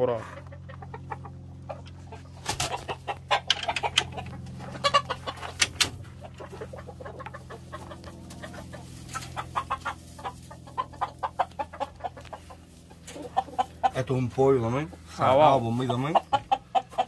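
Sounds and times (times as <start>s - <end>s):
roosters clucking: 0.0s - 17.0s
wooden pen door rattling: 3.3s - 4.2s.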